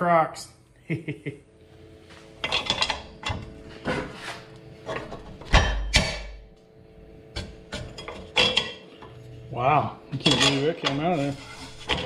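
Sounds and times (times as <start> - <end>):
wrench clanking on metal pipe: 2.4 - 3.4, 10.1 - 11.1.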